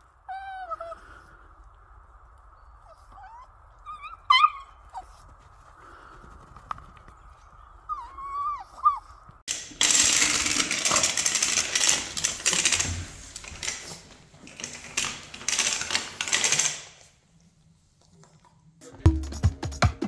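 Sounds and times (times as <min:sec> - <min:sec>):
dog whining: 0:00.3 - 0:01.1, 0:02.8 - 0:05.2, 0:07.9 - 0:09.3.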